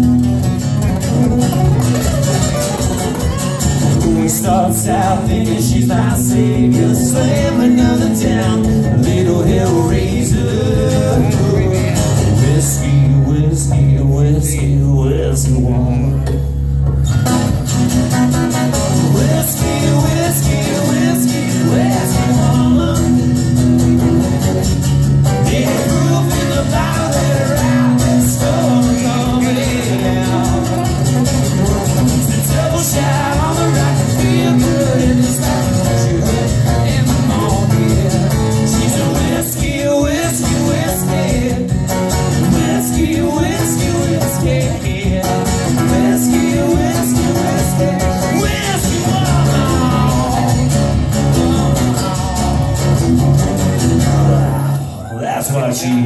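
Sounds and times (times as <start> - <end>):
electric guitar lead lines: 0.0 - 56.0
strummed acoustic guitar: 0.0 - 56.0.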